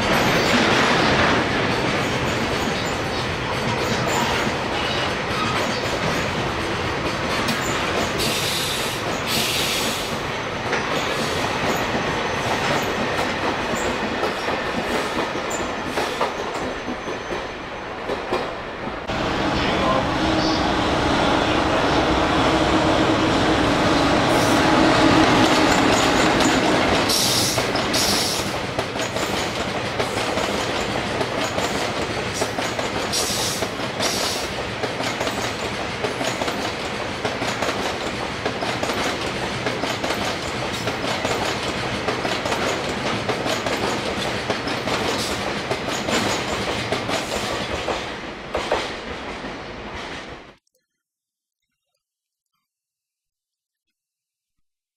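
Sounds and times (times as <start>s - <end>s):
electric locomotive humming: 0.0s - 48.6s
wheels clacking over rail joints: 24.3s - 50.5s.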